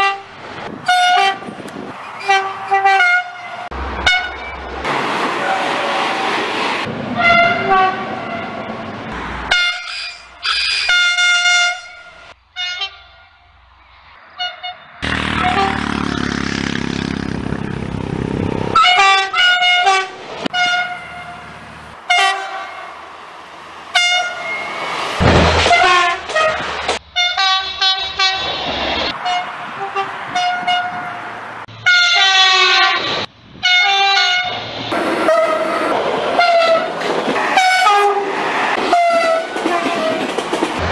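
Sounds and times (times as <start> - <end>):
train horn blasts: 0.0 - 1.6, 2.2 - 4.4, 7.2 - 8.7, 9.5 - 13.4, 14.4 - 16.0, 18.8 - 21.4, 22.1 - 22.9, 23.9 - 24.6, 25.7 - 26.6, 27.2 - 28.4, 29.1 - 31.2, 31.8 - 34.6, 35.3 - 35.8, 37.6 - 38.3, 38.9 - 40.3
passing train rushing: 0.0 - 40.9.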